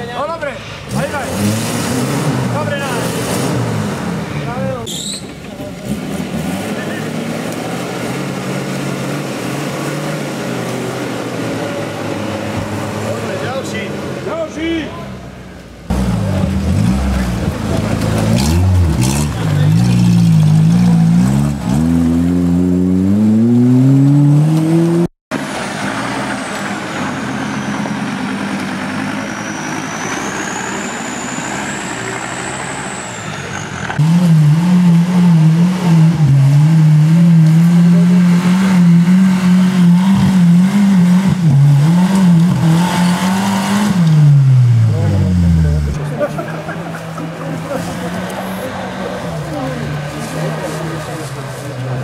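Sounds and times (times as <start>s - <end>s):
engine revving hard: 0.9s - 4.3s, 15.9s - 25.1s, 33.9s - 46.0s
engine working under load: 15.1s - 52.0s.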